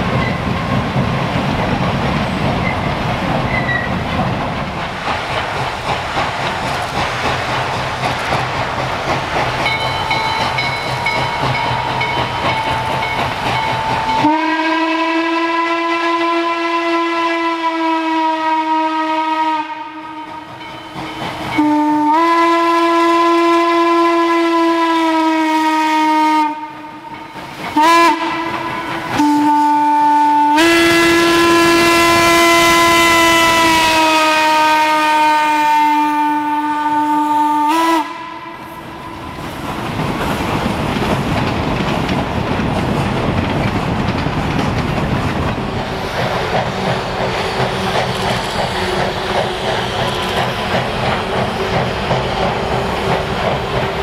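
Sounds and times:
wheels clacking on rails: 0.0s - 15.7s, 19.5s - 24.9s, 26.5s - 34.6s, 37.8s - 54.0s
steam locomotive exhaust: 0.0s - 54.0s
steam whistle blasts: 14.0s - 20.5s, 21.6s - 27.2s, 27.8s - 39.2s.

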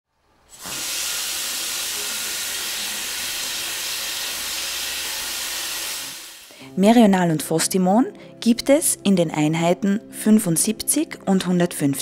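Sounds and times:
tap water running onto hands: 0.5s - 6.5s.

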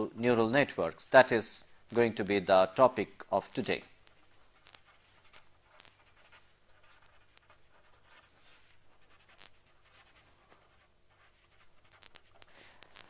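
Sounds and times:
marker pen scratching: 3.4s - 13.0s.

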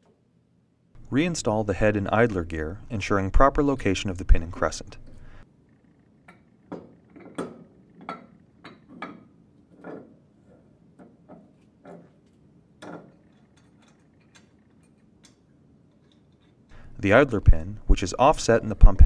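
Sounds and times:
metal clicks and knocks: 6.3s - 10.2s, 11.0s - 16.6s.

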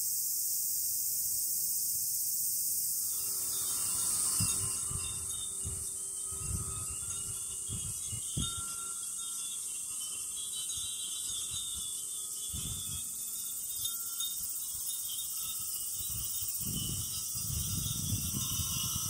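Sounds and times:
cicadas chorus: 0.0s - 19.0s
glass wind chimes tinkling: 1.2s - 19.0s
wind buffeting microphone: 3.1s - 9.2s, 10.7s - 13.1s, 15.5s - 19.0s.

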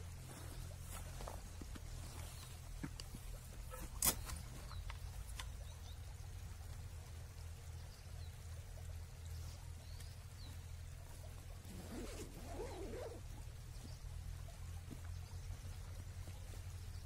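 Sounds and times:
stream trickling over stones: 0.0s - 17.0s
backpack clicks: 3.7s - 5.5s.

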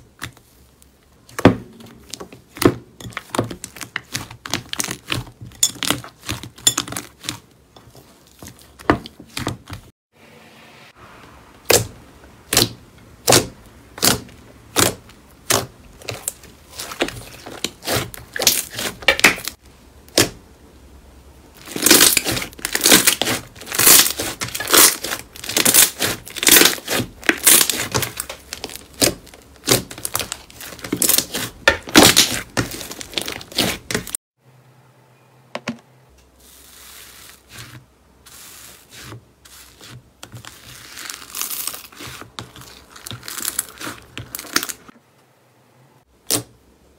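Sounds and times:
slime squishing in a plastic tub: 0.0s - 9.9s, 11.6s - 20.5s, 21.5s - 34.2s, 36.4s - 44.9s
slime popping and squelching: 21.6s - 34.2s.

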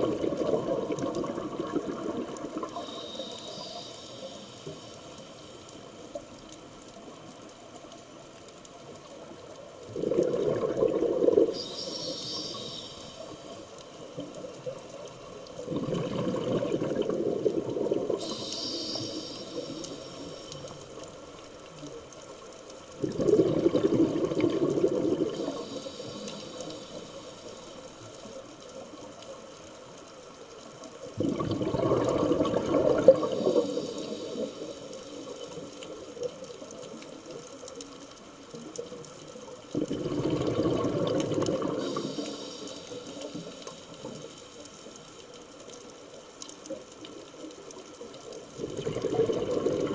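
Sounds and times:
regulator exhaust bubbling underwater: 9.9s - 11.7s, 15.6s - 18.6s, 23.0s - 25.6s, 31.2s - 33.9s, 39.7s - 42.2s, 48.5s - 49.9s.

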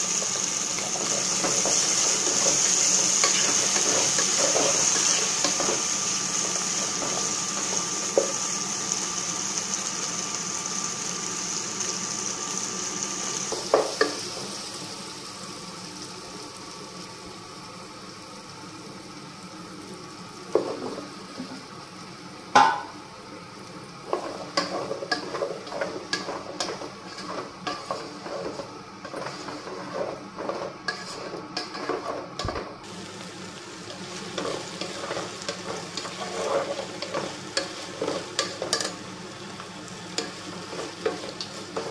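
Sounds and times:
vegetables sizzling in oil: 0.0s - 41.9s
wooden spatula stirring and scraping: 24.0s - 32.7s, 34.0s - 39.0s, 40.2s - 41.9s.

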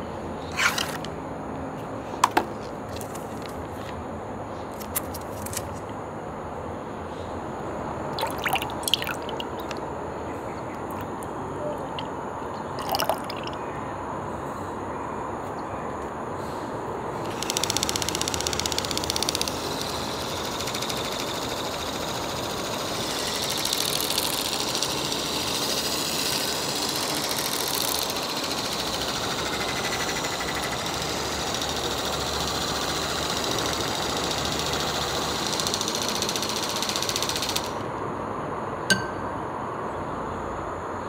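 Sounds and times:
handheld whisk motor whine: 17.2s - 37.8s.

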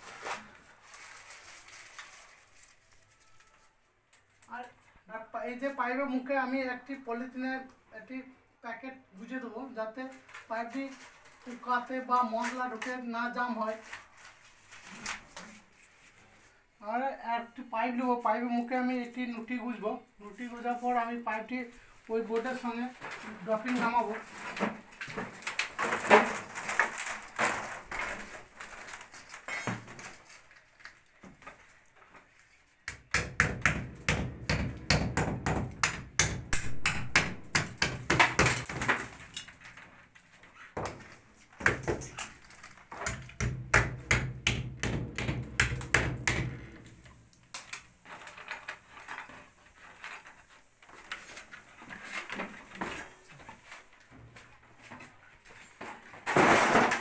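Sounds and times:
knocking and tapping on brick wall: 32.8s - 38.9s, 40.8s - 42.2s, 42.9s - 46.9s.

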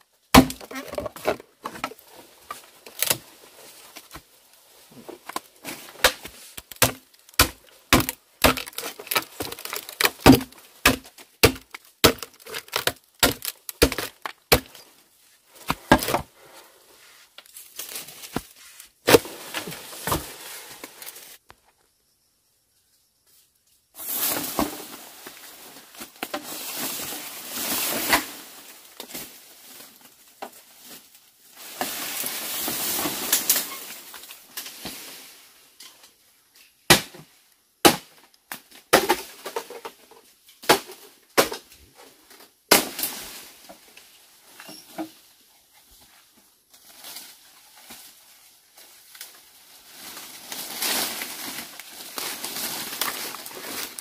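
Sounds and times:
bamboo leaves rustling: 0.2s - 21.4s, 24.0s - 36.9s, 37.9s - 54.0s
bamboo cracking: 0.3s - 4.2s, 5.1s - 14.9s, 25.9s - 26.5s, 46.7s - 54.0s.

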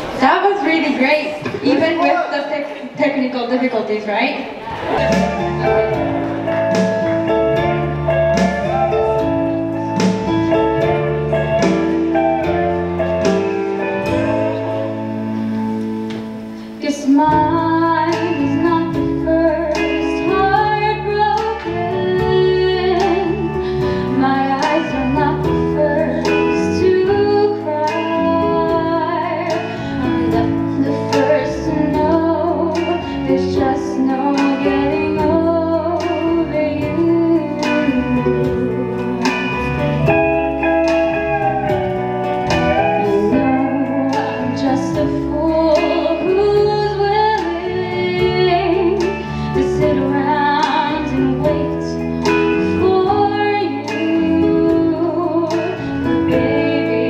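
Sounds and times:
instrumental accompaniment: 4.6s - 57.0s
woman singing a slow song: 16.6s - 41.5s, 42.5s - 57.0s.

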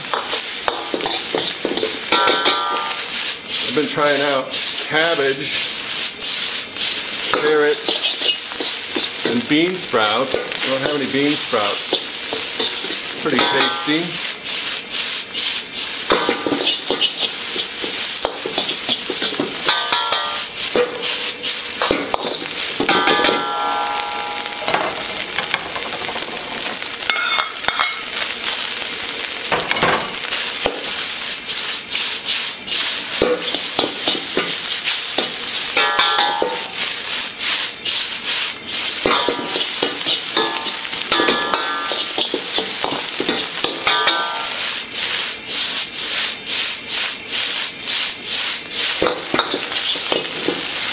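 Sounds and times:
rice sizzling in a wok: 0.0s - 50.9s
metal ladle scraping a pan: 0.1s - 24.6s, 32.7s - 36.7s, 37.9s - 46.3s.

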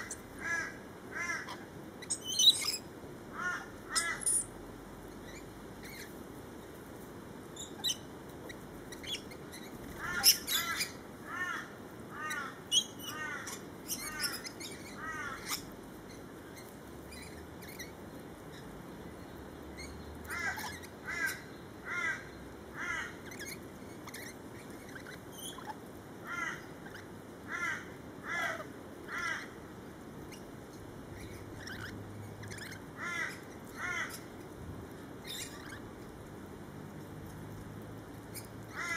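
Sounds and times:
sharp high bird chirps: 2.0s - 2.8s, 3.9s - 4.5s.

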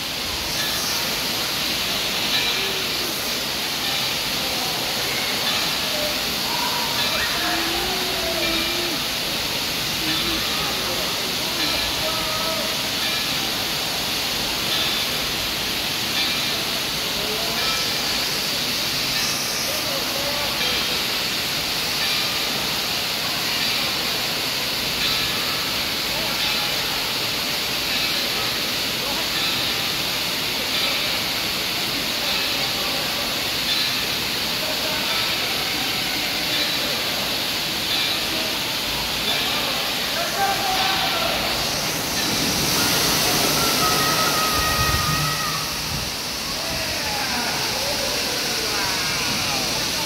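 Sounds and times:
water spraying and pouring: 0.0s - 50.0s.

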